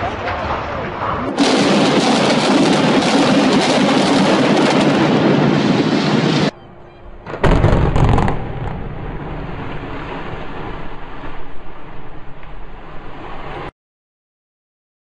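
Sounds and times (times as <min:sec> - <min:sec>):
demolition blasts: 0:00.0 - 0:06.6, 0:07.2 - 0:13.7
deep rumble: 0:00.0 - 0:13.7.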